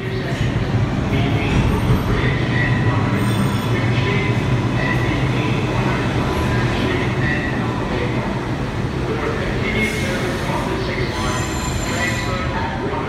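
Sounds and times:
train wheels rumbling on rails: 0:00.0 - 0:13.0
high wheel squeals: 0:11.2 - 0:12.5.

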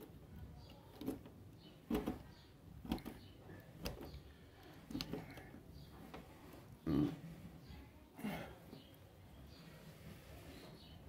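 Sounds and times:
wire twisting clicks and rubs: 0:00.9 - 0:04.2.

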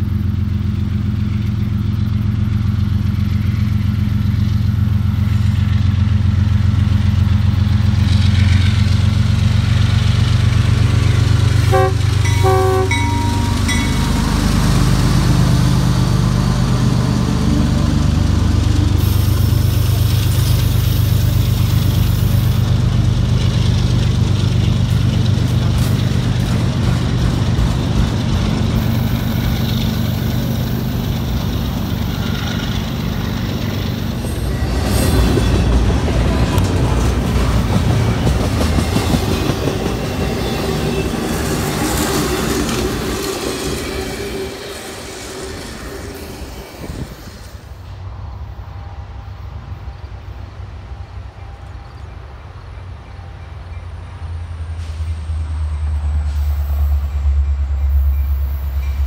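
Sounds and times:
diesel locomotive engine drone: 0:00.0 - 0:59.0
rail cars rumbling and clattering: 0:00.0 - 0:59.0
train horn blasts: 0:11.6 - 0:14.8.

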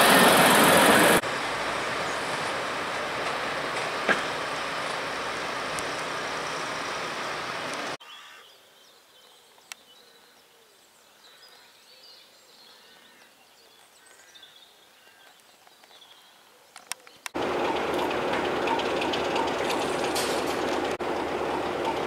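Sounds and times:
train wheels clicking over rail joints: 0:02.3 - 0:06.2, 0:17.4 - 0:22.0
faint birdsong: 0:08.0 - 0:19.8.

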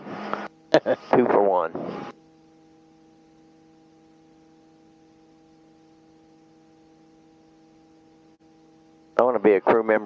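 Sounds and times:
faint electrical hum: 0:00.0 - 0:10.0.

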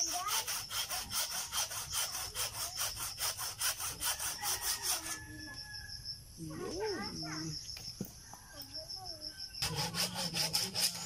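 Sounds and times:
hand saw cutting roots: 0:00.0 - 0:05.2, 0:09.6 - 0:11.0
high insect trill: 0:00.0 - 0:11.0.

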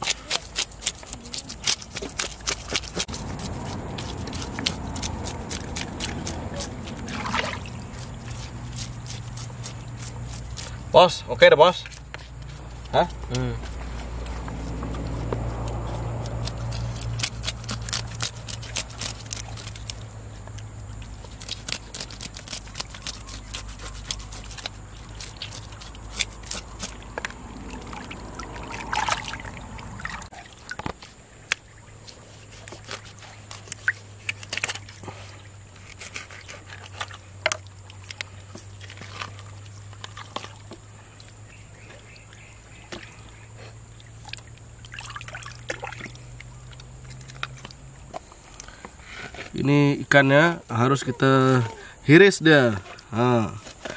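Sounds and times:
knife scraping fish scales: 0:00.0 - 0:10.9, 0:11.7 - 0:20.1, 0:21.2 - 0:27.4, 0:32.0 - 0:37.2
water trickling and splashing: 0:00.0 - 0:48.8.

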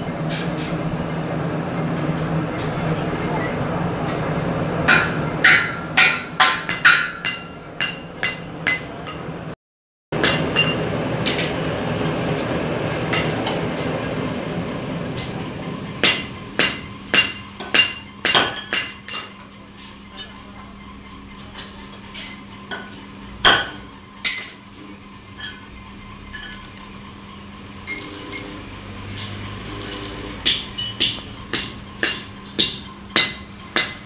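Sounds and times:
hammer striking metal pulleys: 0:04.8 - 0:09.3, 0:10.2 - 0:14.2, 0:15.1 - 0:20.4, 0:21.3 - 0:24.8, 0:27.8 - 0:34.0.

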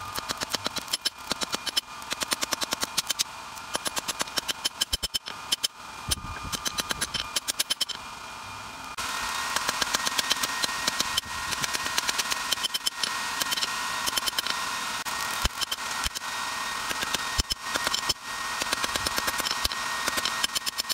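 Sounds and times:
steady blowing noise: 0:05.8 - 0:07.3.

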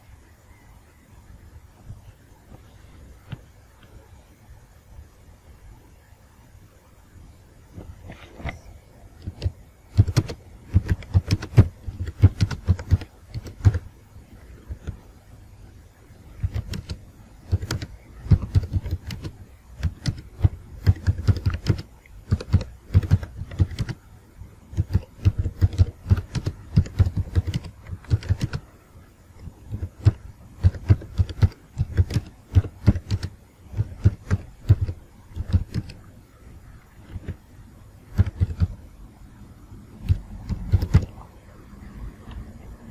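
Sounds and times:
keyboard key clicks: 0:09.2 - 0:13.9, 0:16.4 - 0:24.0, 0:24.7 - 0:28.6, 0:29.4 - 0:36.0, 0:38.1 - 0:38.8, 0:40.0 - 0:41.1.

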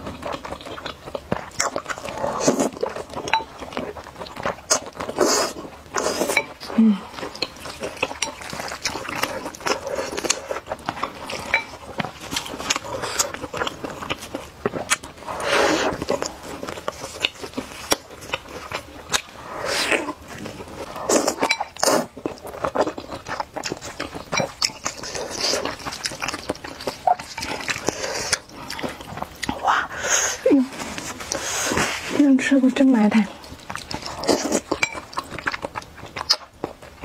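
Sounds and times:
chewing clicks and smacks: 0:00.0 - 0:05.6, 0:07.2 - 0:15.2, 0:20.4 - 0:29.6, 0:33.3 - 0:37.0
slurping noodles: 0:00.7 - 0:03.1, 0:04.6 - 0:13.8, 0:14.8 - 0:24.0, 0:24.6 - 0:32.4.

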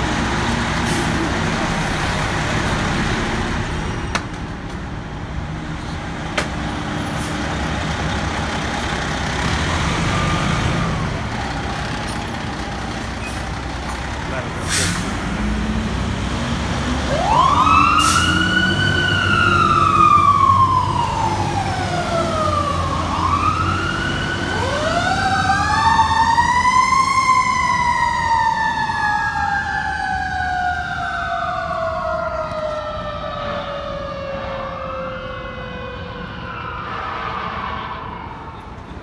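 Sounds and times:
mechanical siren wailing: 0:17.1 - 0:38.8.

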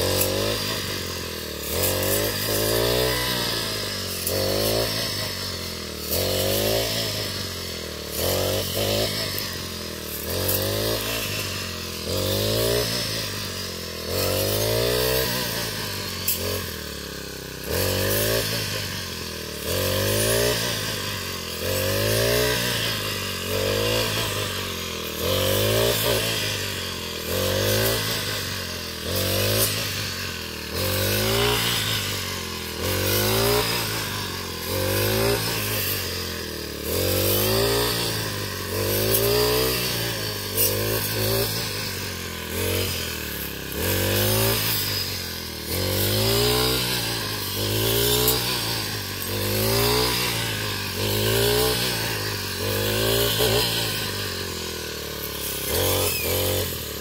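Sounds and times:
brush cutter engine running: 0:00.0 - 0:57.0
hiss of cut straw: 0:36.9 - 0:57.0.

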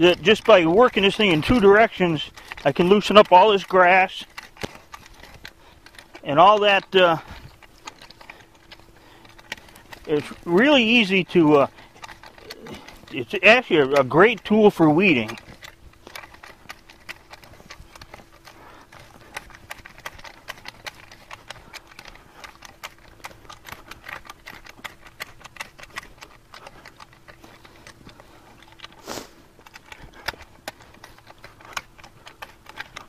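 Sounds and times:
hoe scraping through soil: 0:00.0 - 0:33.0
loud hoe scrape: 0:27.0 - 0:30.4.

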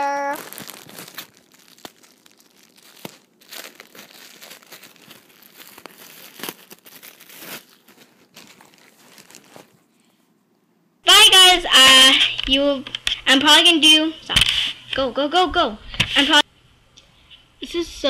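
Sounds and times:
packaging crinkling and rustling: 0:00.0 - 0:09.9.

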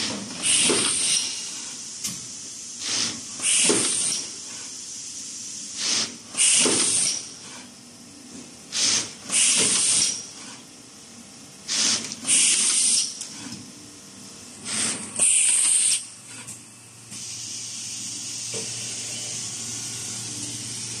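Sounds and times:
compressed air hisses: 0:00.4 - 0:07.7, 0:08.7 - 0:10.2, 0:11.7 - 0:13.1, 0:14.7 - 0:16.0, 0:17.1 - 0:18.7.

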